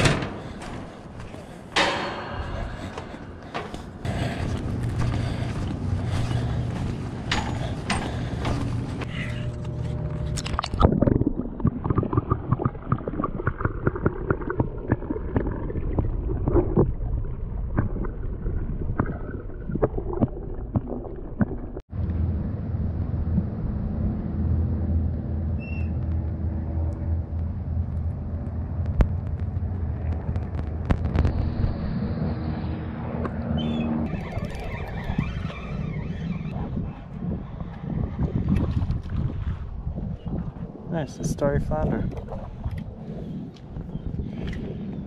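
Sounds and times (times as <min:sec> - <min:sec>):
low mechanical drone underwater: 0:00.0 - 0:45.0
gurgling water: 0:09.9 - 0:21.9, 0:36.5 - 0:45.0.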